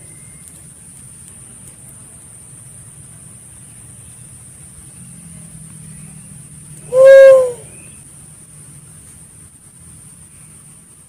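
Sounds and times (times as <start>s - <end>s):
faint high hiss: 0.0s - 11.0s
dove hooting: 6.9s - 7.8s.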